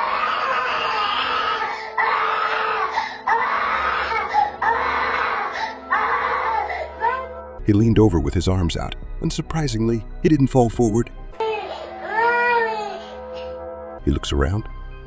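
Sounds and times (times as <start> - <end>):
toddler screaming and crying: 0.0 - 7.4, 11.4 - 13.5.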